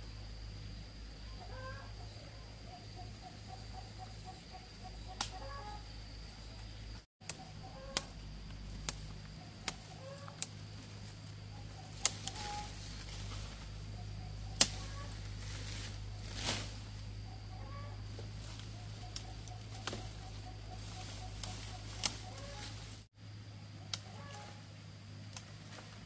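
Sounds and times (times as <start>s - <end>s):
chickens clucking: 1.3s - 6.0s, 6.6s - 8.2s, 9.3s - 10.5s, 11.5s - 15.4s, 17.2s - 23.0s, 23.7s - 24.6s
low hum: 4.8s - 26.0s.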